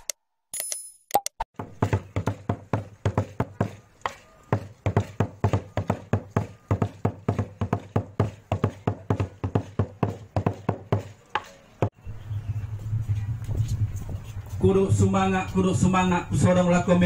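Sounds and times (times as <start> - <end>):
rhythmic percussion beating: 4.5 - 12.0.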